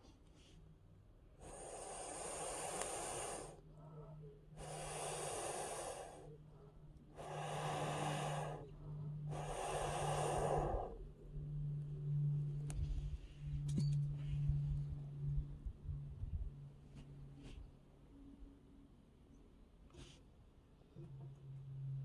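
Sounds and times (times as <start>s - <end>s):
long hissing breaths out: 1.4s - 3.7s, 4.6s - 6.4s, 7.1s - 11.2s.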